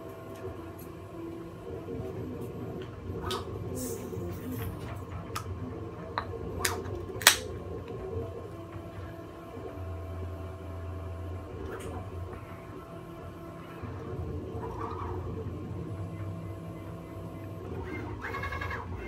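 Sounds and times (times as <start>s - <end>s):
stepper motors humming: 0.0s - 19.0s.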